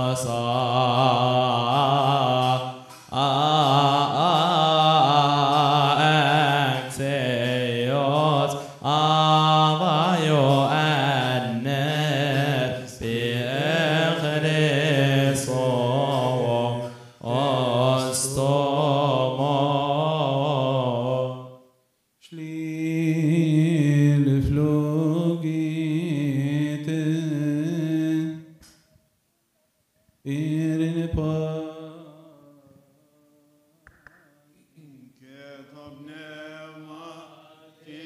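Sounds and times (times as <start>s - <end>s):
voices singing liturgical chant: 0.0s - 21.6s, 34.8s - 38.0s.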